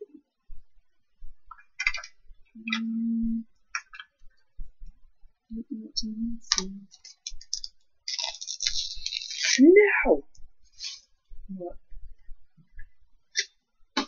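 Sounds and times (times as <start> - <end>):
low hum: 2.2 - 3.6
plastic packaging crinkling: 7.0 - 9.6.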